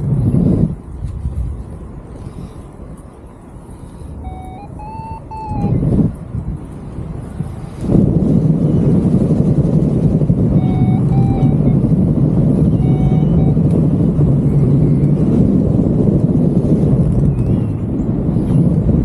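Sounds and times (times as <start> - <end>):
wind rushing over microphone: 0.0 - 19.0
variometer beeps: 4.2 - 6.0, 10.5 - 15.2.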